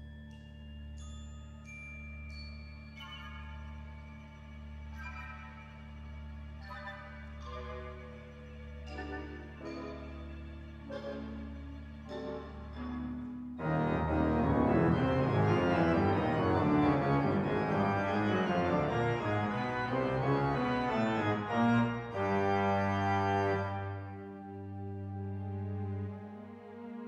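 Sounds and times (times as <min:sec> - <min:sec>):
organ playing: 0:06.9 - 0:24.6.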